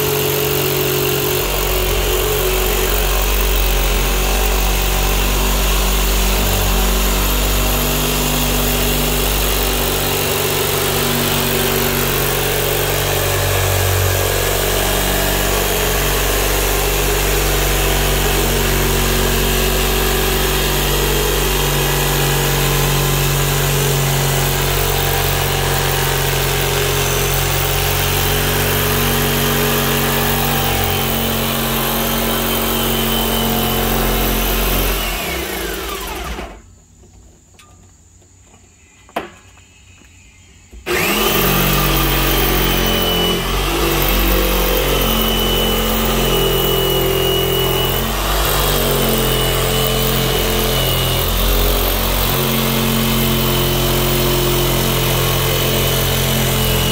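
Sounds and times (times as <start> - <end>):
jigsaw cutting plastic: 0.0 - 36.7, 40.9 - 56.9.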